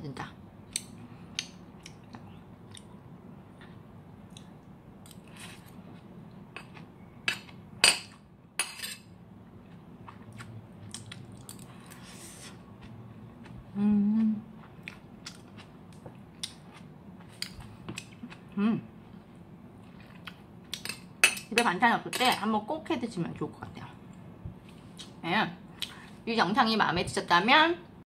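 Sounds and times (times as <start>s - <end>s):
quiet eating sounds: 0.2s - 21.6s, 23.2s - 26.2s
person humming: 13.7s - 14.5s.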